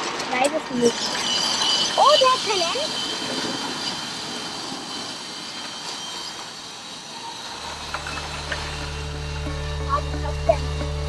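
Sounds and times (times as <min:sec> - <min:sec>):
faint high whine: 0:00.3 - 0:11.0
low music drone: 0:07.4 - 0:11.0.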